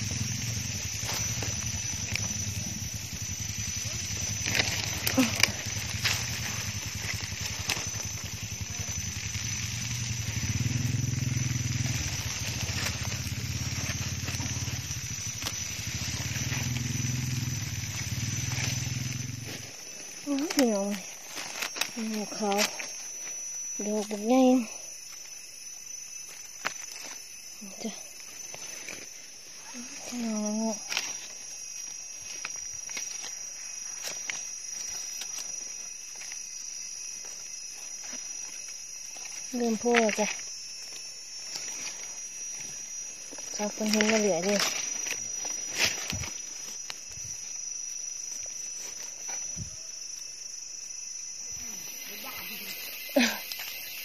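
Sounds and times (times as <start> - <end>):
small engine running: 0.0 - 24.8
high-pitched insect chorus: 0.0 - 54.0.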